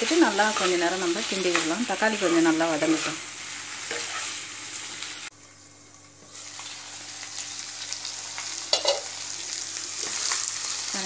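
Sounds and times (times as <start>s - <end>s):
food sizzling in frying pan: 0.0s - 11.0s
spatula stirring in pan: 3.8s - 4.4s.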